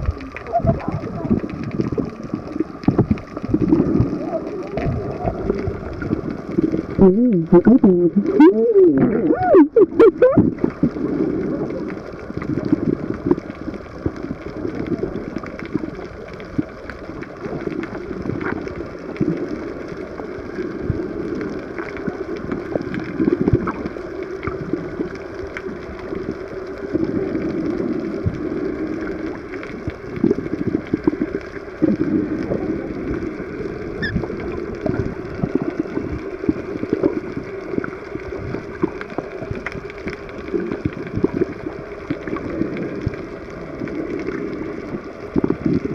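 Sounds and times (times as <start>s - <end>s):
muffled churning water underwater: 0.0s - 45.9s
faint clicks: 10.6s - 45.9s.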